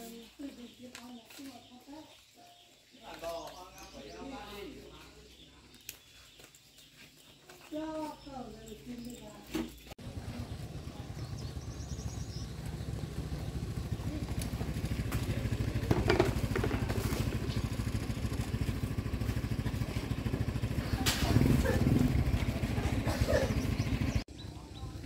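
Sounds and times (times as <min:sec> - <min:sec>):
small engine running: 0:10.0 - 0:25.0.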